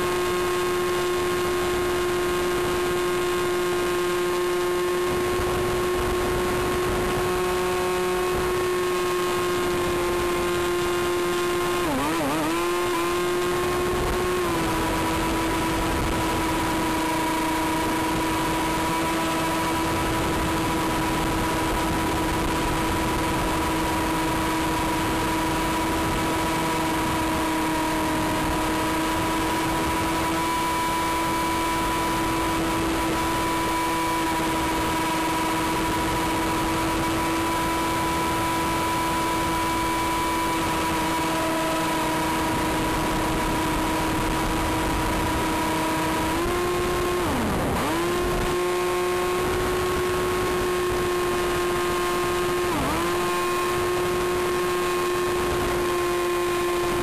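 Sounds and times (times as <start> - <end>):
electric motor and propeller whining: 0.0 - 57.0.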